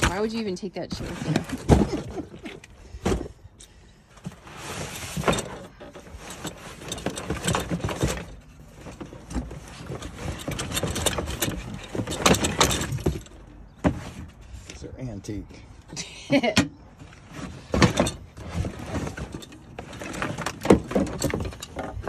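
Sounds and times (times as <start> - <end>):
hands rummaging through cardboard box: 4.2 - 14.4, 17.1 - 22.0.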